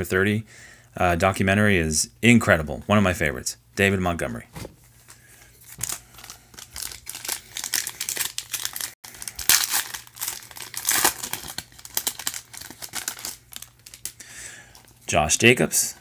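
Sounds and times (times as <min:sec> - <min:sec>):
foil wrapper crinkling and tearing: 0:05.6 - 0:14.9.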